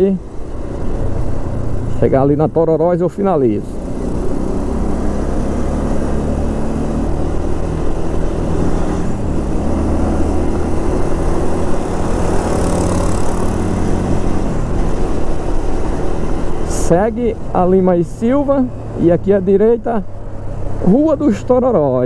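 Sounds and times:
wind and road noise: 0.0s - 22.0s
motorcycle engine running: 10.6s - 14.4s.

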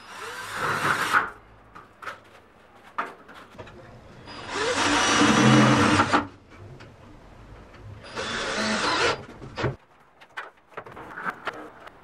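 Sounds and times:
cordless drill driving screws: 4.4s - 6.2s, 8.1s - 9.2s.

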